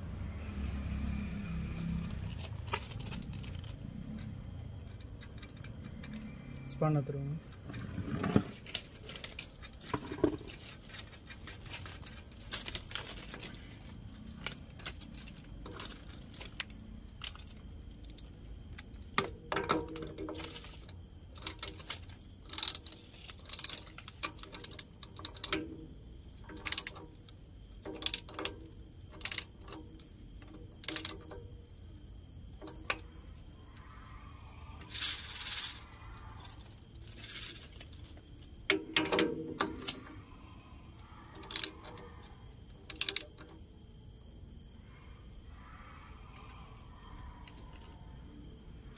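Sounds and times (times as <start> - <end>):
metallic rattle: 1.8 - 34.0, 34.7 - 44.0.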